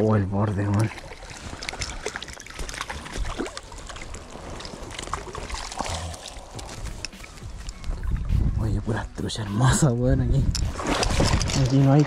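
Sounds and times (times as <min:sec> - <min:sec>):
stream water sloshing and splashing: 0:00.0 - 0:08.4, 0:10.4 - 0:12.0
fish splashing: 0:00.9 - 0:08.1, 0:10.6 - 0:11.8.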